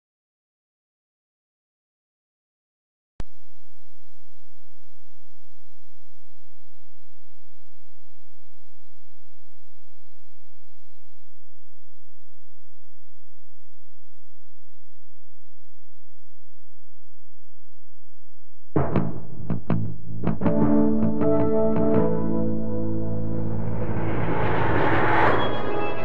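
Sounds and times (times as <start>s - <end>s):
low mains hum: 3.2s - 18.8s
faint tape hiss: 3.2s - 24.8s.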